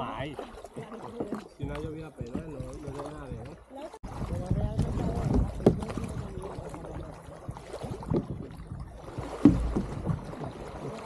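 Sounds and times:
paddle knock: 0:00.0 - 0:11.0
paddles splashing in water: 0:00.0 - 0:11.0
water dripping: 0:00.0 - 0:11.0
low rumble: 0:01.7 - 0:10.8.

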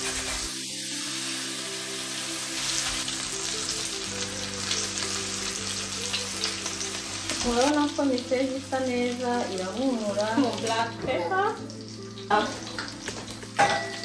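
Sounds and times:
spatula in frying pan: 0:00.0 - 0:04.0
fish sizzling in oil: 0:00.0 - 0:14.0.

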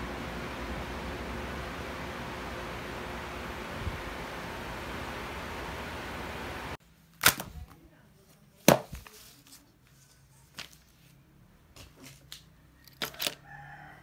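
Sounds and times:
paper handling: 0:08.6 - 0:11.2
books thumping on wooden desk: 0:08.7 - 0:09.1.

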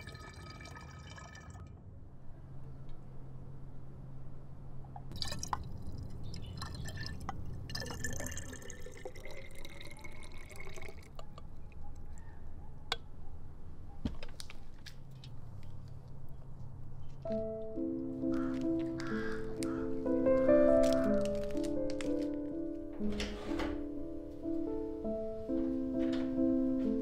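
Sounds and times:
juice trickling and dripping: 0:00.0 - 0:01.8, 0:05.1 - 0:11.8.

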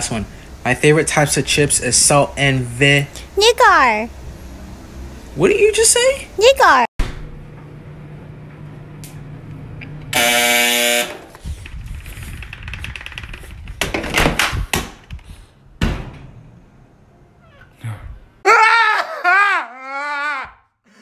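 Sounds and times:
washing machine buzzer: 0:10.1 - 0:11.3.

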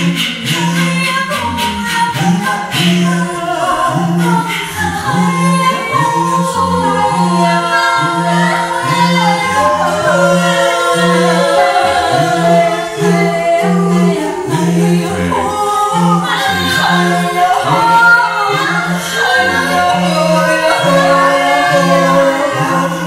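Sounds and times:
higher voices sliding long lines: 0:04.7 - 0:23.0.

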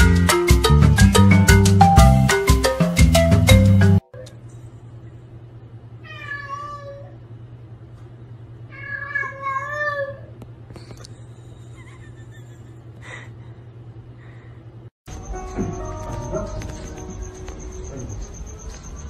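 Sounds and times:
cat meowing: 0:06.0 - 0:07.2, 0:08.7 - 0:10.3.

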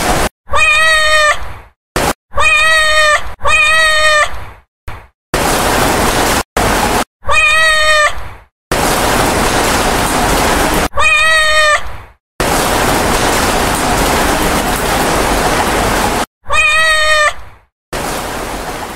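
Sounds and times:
cat meowing: 0:00.5 - 0:01.5, 0:02.3 - 0:04.4, 0:07.2 - 0:08.2, 0:10.9 - 0:12.0, 0:16.4 - 0:17.5.

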